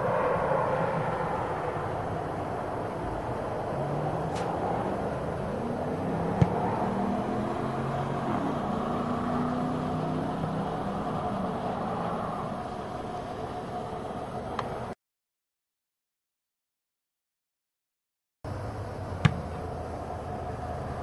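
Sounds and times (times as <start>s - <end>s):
low wavering engine-like hum: 0.0s - 15.0s, 18.5s - 21.0s
football being kicked: 6.4s - 6.7s, 19.2s - 19.5s.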